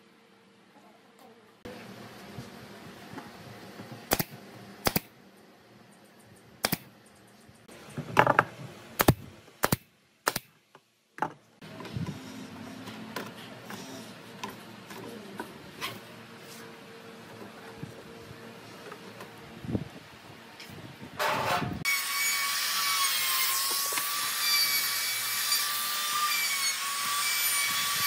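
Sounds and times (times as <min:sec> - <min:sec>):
wooden chair parts knocking: 0:08.0 - 0:08.5.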